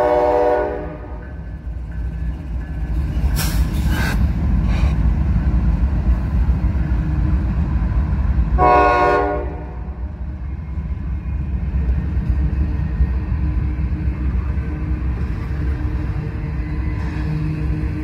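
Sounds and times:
locomotive horn blast: 0:00.0 - 0:01.2, 0:08.6 - 0:10.0
train passing rumble: 0:00.0 - 0:18.0.

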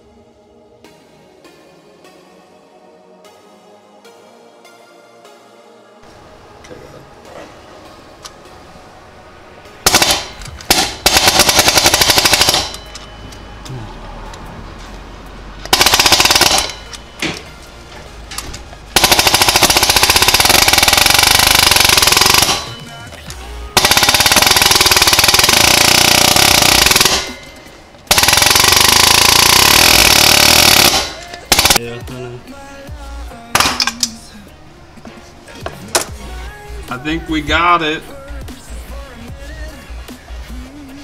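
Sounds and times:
air hammer rapid blows: 0:19.0 - 0:22.7, 0:23.8 - 0:31.8.

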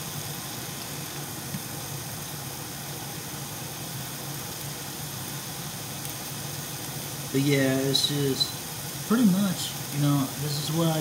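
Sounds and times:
patties frying in a pan: 0:00.0 - 0:11.0
range hood fan hum: 0:00.0 - 0:11.0.

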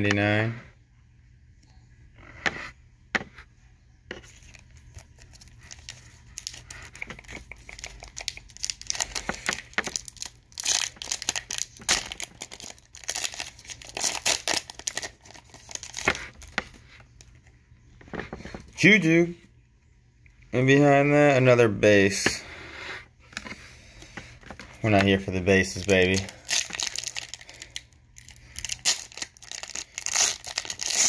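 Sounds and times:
foil pack tearing and crinkling: 0:04.5 - 0:07.0, 0:07.7 - 0:16.6, 0:25.6 - 0:31.0.

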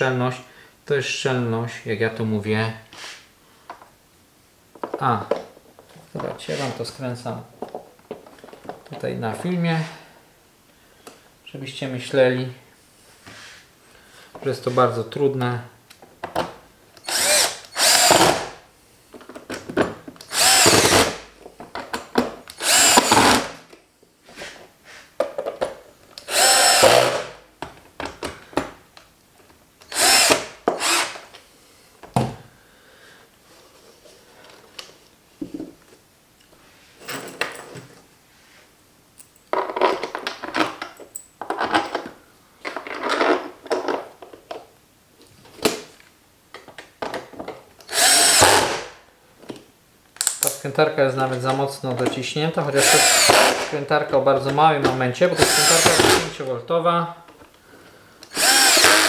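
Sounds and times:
cordless drill driving screws: 0:17.0 - 0:18.5, 0:20.3 - 0:21.2, 0:22.5 - 0:23.5, 0:26.2 - 0:27.4, 0:29.9 - 0:31.2, 0:47.9 - 0:48.9, 0:52.7 - 0:53.7, 0:55.4 - 0:56.3, 0:58.3 - 0:59.0.

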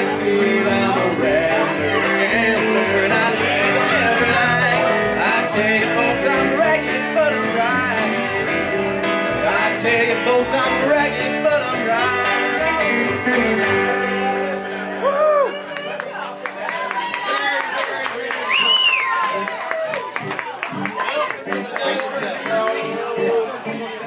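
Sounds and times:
plucked upright bass: 0:00.0 - 0:14.9
acoustic guitar: 0:00.0 - 0:17.2, 0:18.6 - 0:24.0
electric guitar: 0:00.0 - 0:17.3.

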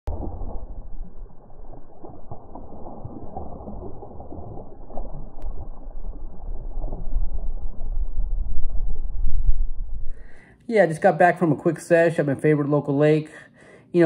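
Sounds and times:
low rumble: 0:00.0 - 0:10.5
fish splashing in water: 0:00.1 - 0:08.4.

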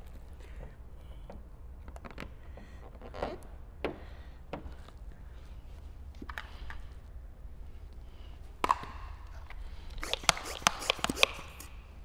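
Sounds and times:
sharp click: 0:10.0 - 0:11.8
spray bottle squirting: 0:10.0 - 0:11.8.

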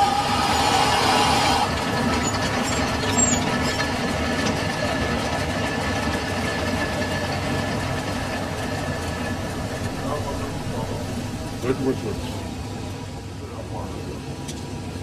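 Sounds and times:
lathe humming with high whine: 0:00.0 - 0:13.5.

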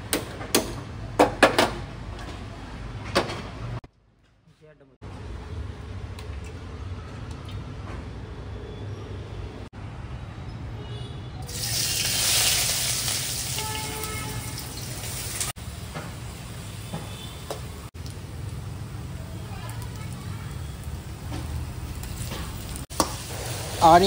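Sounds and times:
hot oil sizzling: 0:11.4 - 0:24.0.

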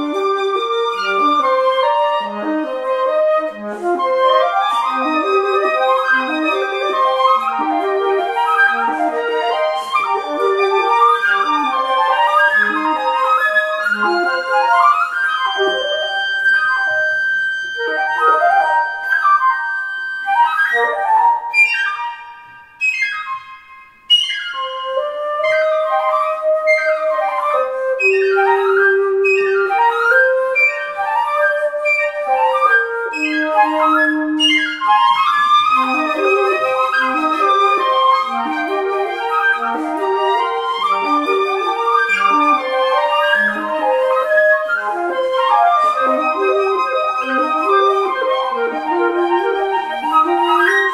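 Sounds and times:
flute trio playing: 0:00.0 - 0:50.9.

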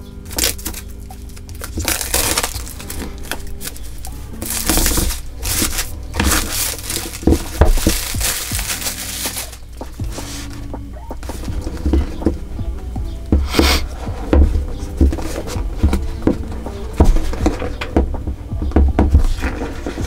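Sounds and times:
plastic shrink wrap crinkling: 0:00.0 - 0:12.3.

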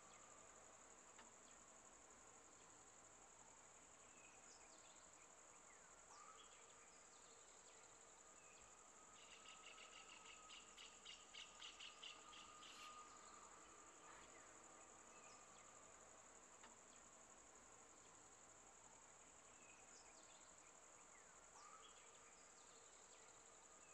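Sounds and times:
high insect drone: 0:00.0 - 0:23.9
bird chirps: 0:08.6 - 0:15.8, 0:19.4 - 0:23.9.

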